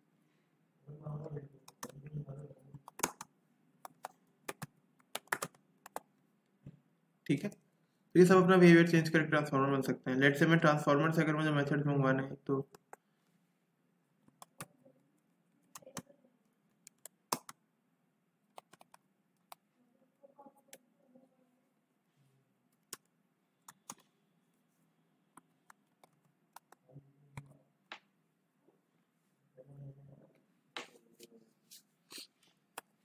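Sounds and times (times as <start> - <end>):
computer keyboard typing: 1.6 - 2.1, 2.7 - 6.1, 16.8 - 17.6, 18.5 - 19.6, 22.8 - 24.1, 25.4 - 26.8.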